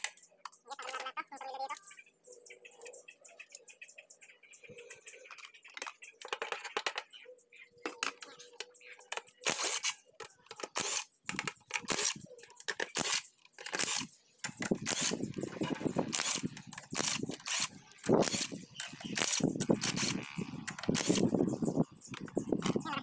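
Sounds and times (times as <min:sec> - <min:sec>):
sharp metallic clicks and knocks: 0:05.3 - 0:07.2, 0:07.8 - 0:21.4.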